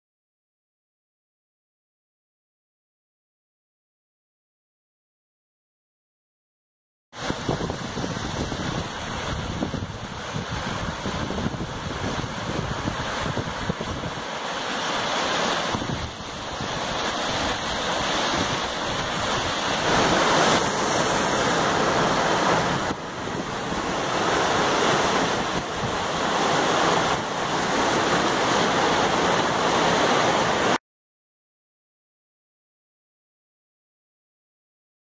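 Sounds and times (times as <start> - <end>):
river rushing in flood: 7.2 - 30.8.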